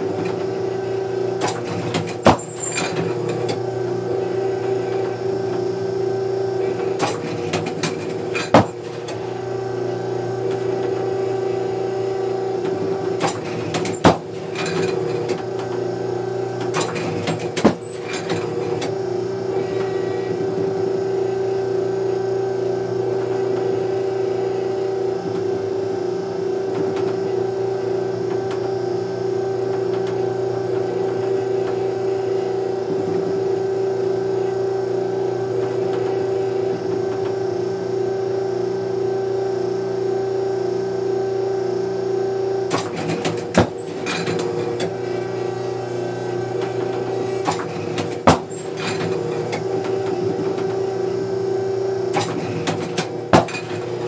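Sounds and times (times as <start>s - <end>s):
trap machine humming: 0.0s - 54.0s
trap machine throwing snaps: 13.2s - 15.4s, 16.6s - 18.4s, 42.7s - 44.9s, 52.1s - 53.9s.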